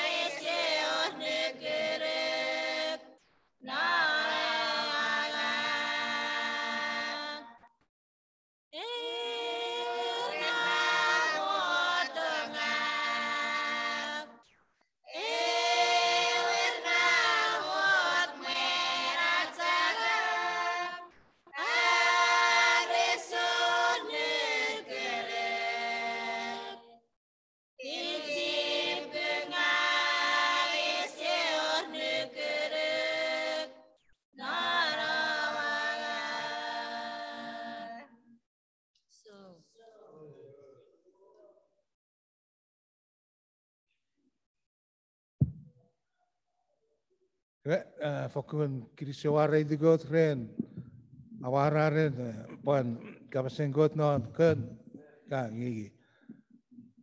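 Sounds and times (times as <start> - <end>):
women singing a cappella hymn: 0.0 - 7.7, 8.8 - 14.4, 15.1 - 27.0, 27.8 - 38.4.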